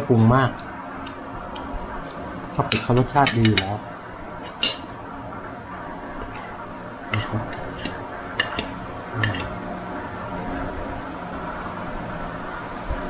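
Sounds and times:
cutlery clinking on a plate: 7.2s - 9.6s.

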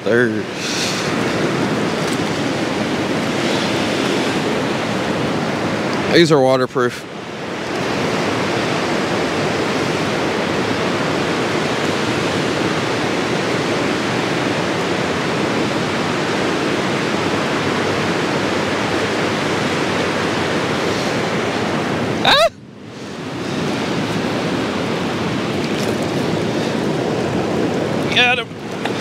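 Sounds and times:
water churning and foaming: 0.0s - 29.0s.

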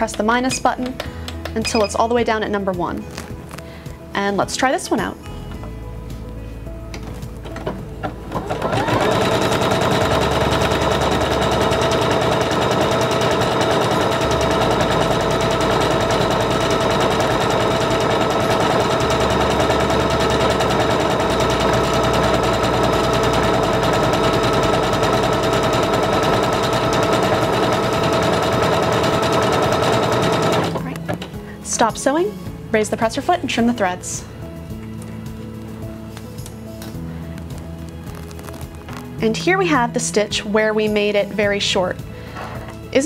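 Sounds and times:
sewing machine motor hum: 7.5s - 30.9s.

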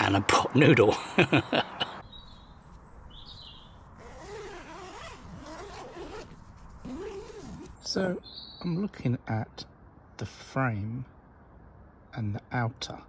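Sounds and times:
birds chirping: 0.0s - 6.3s, 6.9s - 12.6s
tent door zipping shut: 4.0s - 7.8s.

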